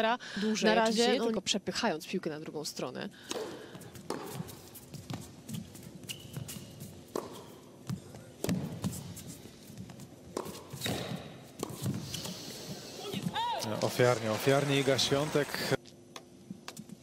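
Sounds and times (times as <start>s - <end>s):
tennis ball hit by rackets: 3.3s - 5.2s, 7.1s - 7.6s, 10.3s - 12.0s
footsteps on court: 3.7s - 12.4s.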